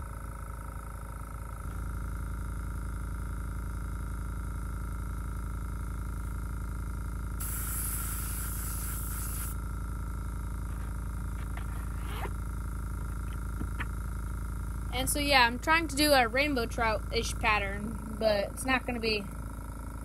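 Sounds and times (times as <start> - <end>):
compressor humming: 0.0 - 20.0
airbrush spraying hiss: 7.4 - 9.6.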